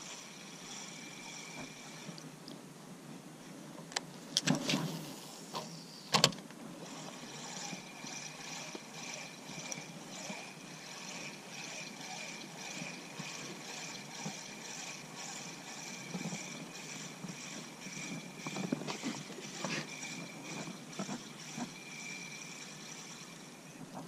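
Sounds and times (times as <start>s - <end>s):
fishing reel whirring: 0.0s - 2.2s, 6.8s - 23.7s.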